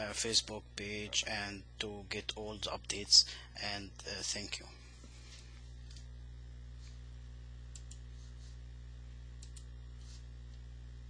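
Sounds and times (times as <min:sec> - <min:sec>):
steady low hum: 0:00.0 - 0:11.0
computer mouse clicks: 0:07.7 - 0:08.0, 0:09.4 - 0:09.7.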